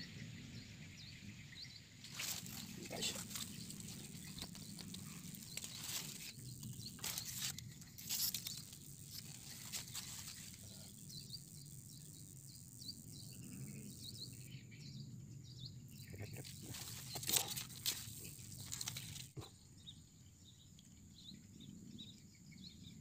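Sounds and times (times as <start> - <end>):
low steady swamp background: 0.0 - 23.0
clicks and rustles: 2.1 - 10.6, 16.4 - 19.5.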